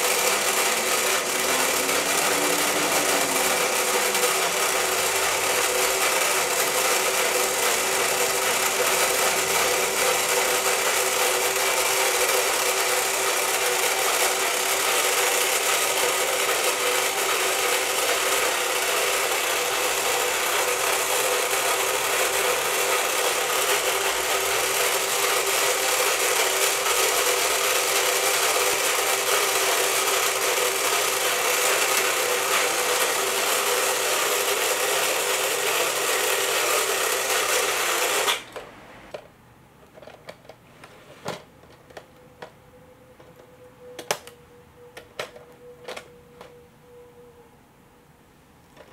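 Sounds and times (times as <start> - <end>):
toy motor and gears whirring: 0.0 - 38.5.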